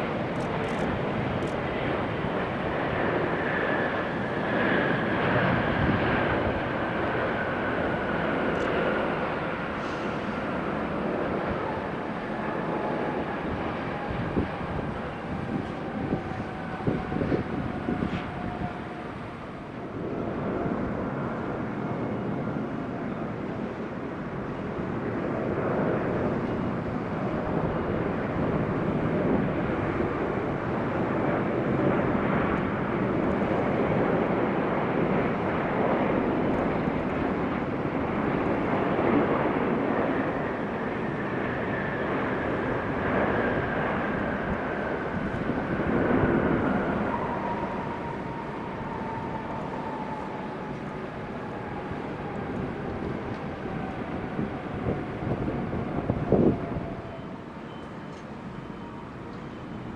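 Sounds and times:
jet engines rumbling: 0.0 - 59.9.

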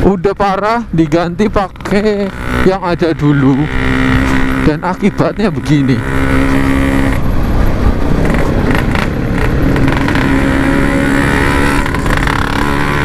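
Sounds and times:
motorcycle engine running: 0.5 - 13.0.

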